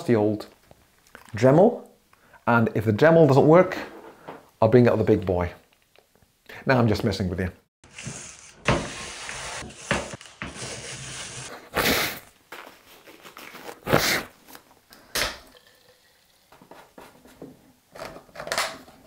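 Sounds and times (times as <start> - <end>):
rustling handling noises: 11.5 - 14.8.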